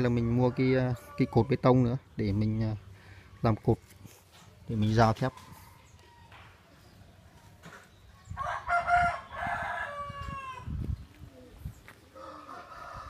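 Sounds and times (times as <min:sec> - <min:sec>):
rooster crowing: 0:08.4 - 0:10.7, 0:12.2 - 0:13.0.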